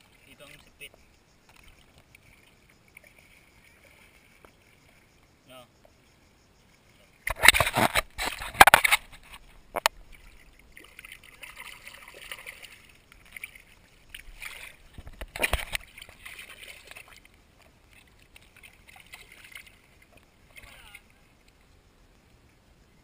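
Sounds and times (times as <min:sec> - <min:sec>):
water swishing and sloshing: 0:00.0 - 0:22.7.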